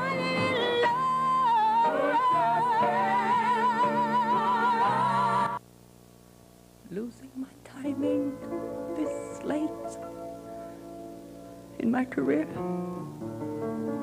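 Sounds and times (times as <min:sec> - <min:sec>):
musical accompaniment: 0:00.0 - 0:05.6
operatic singer with vibrato: 0:00.0 - 0:05.6.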